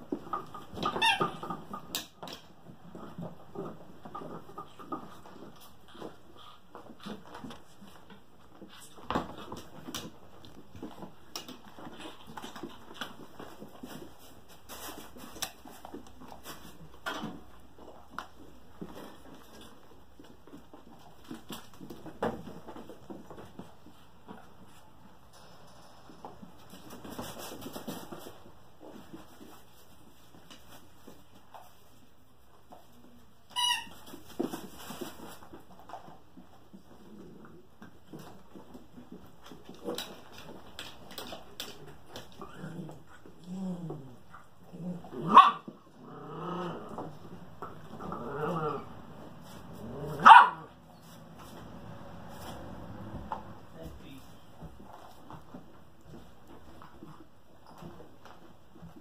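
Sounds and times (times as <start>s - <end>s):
puppies' paws pattering on floor: 0.0s - 59.0s
puppy high squeal: 33.6s - 34.0s.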